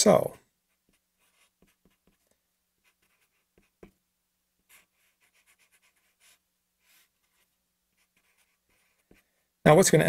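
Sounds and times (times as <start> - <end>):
marker squeaking on paper: 0.9 - 2.2, 4.7 - 9.2.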